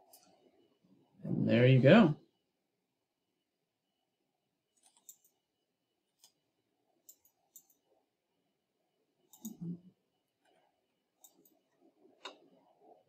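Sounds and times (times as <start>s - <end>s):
computer mouse clicks: 4.7s - 5.4s, 7.0s - 7.8s, 9.3s - 9.6s, 11.2s - 12.6s.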